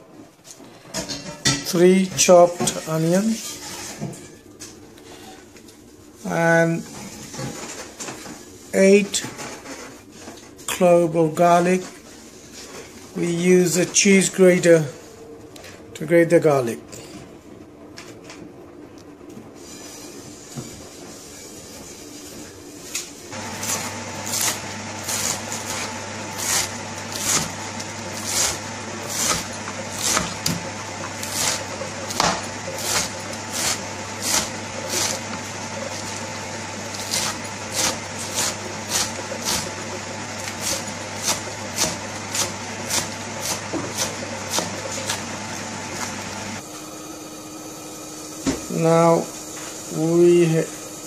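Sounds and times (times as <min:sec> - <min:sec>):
knife chopping on wooden board: 0:23.4 - 0:35.4, 0:36.9 - 0:39.7, 0:40.4 - 0:45.3.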